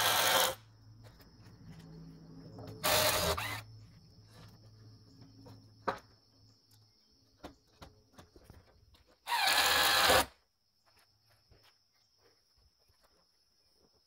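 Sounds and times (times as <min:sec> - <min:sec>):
cordless drill driving screws: 0:00.0 - 0:00.6, 0:02.8 - 0:03.6, 0:09.2 - 0:10.3.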